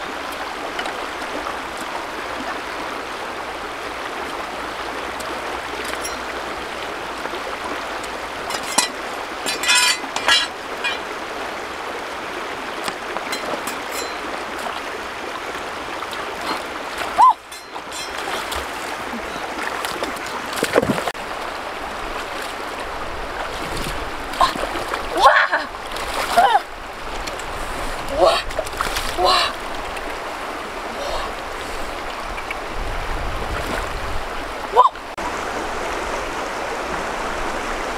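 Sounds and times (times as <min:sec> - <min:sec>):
stream running over rocks: 0:00.0 - 0:37.9
footsteps splashing in water: 0:16.1 - 0:21.2.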